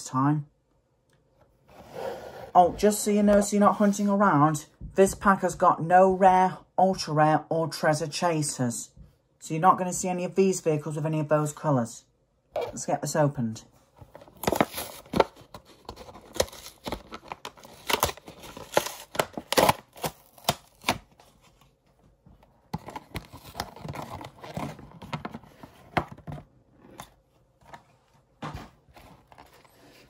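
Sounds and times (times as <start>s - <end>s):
plastic packaging cracking and crinkling: 14.2s - 21.2s.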